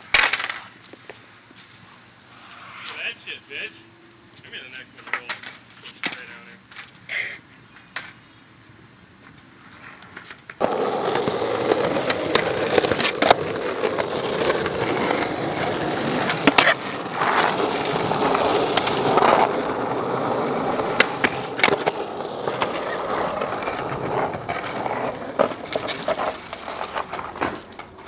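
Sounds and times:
skateboard clacks: 0.0s - 0.7s, 9.2s - 28.0s
skateboard rolling on rough concrete: 0.0s - 1.6s, 9.2s - 28.0s.

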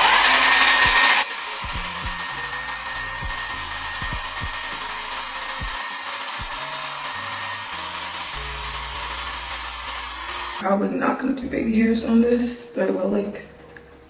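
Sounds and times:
hair dryer blowing: 0.0s - 10.6s.

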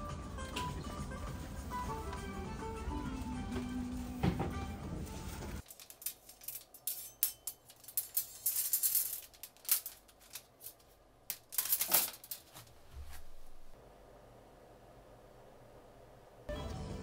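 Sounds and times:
metal hangers clinking and rattling: 5.6s - 13.3s
hangers laid on stone countertop: 5.6s - 13.8s.

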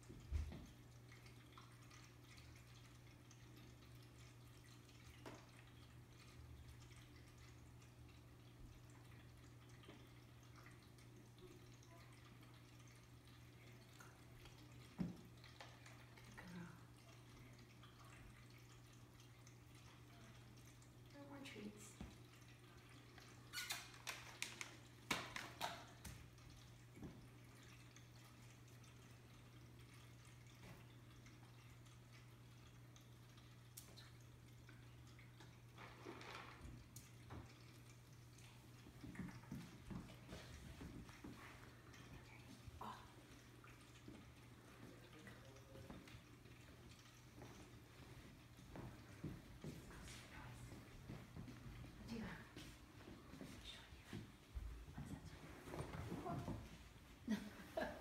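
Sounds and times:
faint steady hum: 0.0s - 58.0s
water dripping and trickling: 0.0s - 58.0s.

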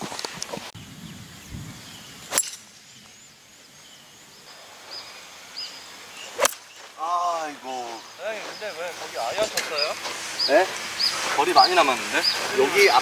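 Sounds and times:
birds chirping: 0.0s - 13.0s
golf club striking ball: 2.3s - 2.7s, 6.4s - 6.8s.

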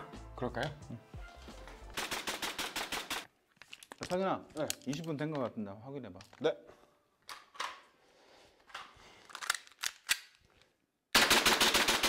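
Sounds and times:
airsoft pistol full-auto burst: 2.0s - 3.3s, 11.2s - 12.0s.

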